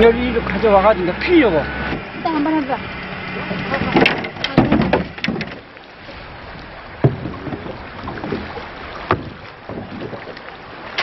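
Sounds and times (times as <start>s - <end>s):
water sloshing around boat: 0.0s - 11.0s
sharp knocks: 3.8s - 5.6s, 7.0s - 7.6s, 9.1s - 10.0s
wind on microphone: 6.2s - 10.4s.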